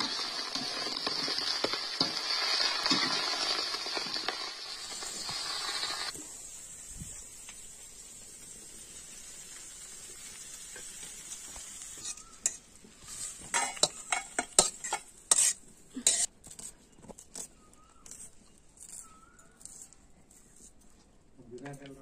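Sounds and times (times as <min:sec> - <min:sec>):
metal spatula scraping wok: 0:00.0 - 0:06.1, 0:11.8 - 0:16.7
fish sizzling in hot oil: 0:00.0 - 0:16.3.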